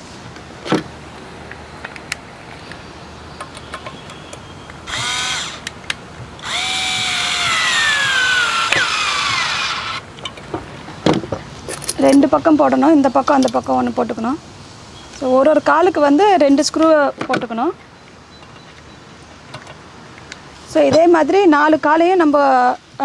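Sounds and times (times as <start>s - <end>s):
electric screwdriver motor: 4.9s - 5.7s, 6.4s - 10.0s.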